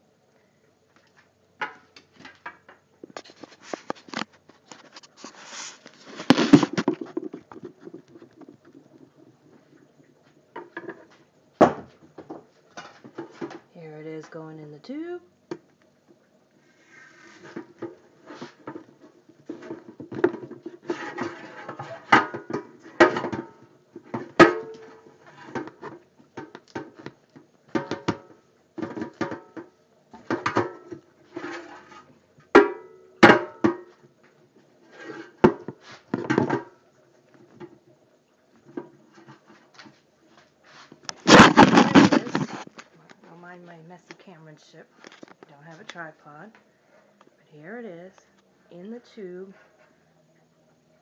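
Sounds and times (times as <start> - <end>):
brush scraping inside hose: 3.2 - 9.0, 16.6 - 19.9, 20.6 - 22.1, 31.3 - 32.1, 40.6 - 42.8.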